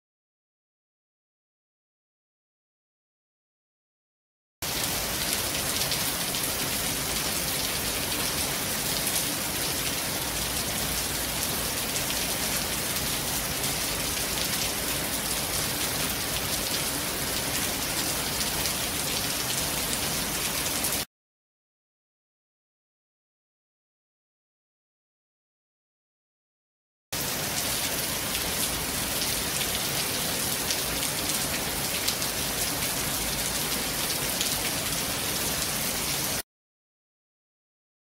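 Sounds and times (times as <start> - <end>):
heavy rain on pavement: 4.6 - 21.1, 27.2 - 36.4.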